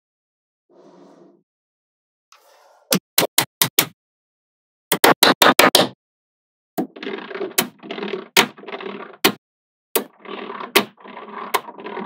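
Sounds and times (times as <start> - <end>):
balls rolling and rattling: 6.8 - 9.2, 10.0 - 12.0.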